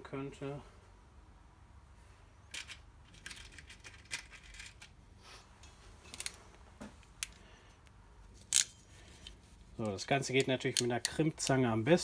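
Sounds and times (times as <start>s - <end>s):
plastic terminals rattling in a box: 2.5s - 5.0s.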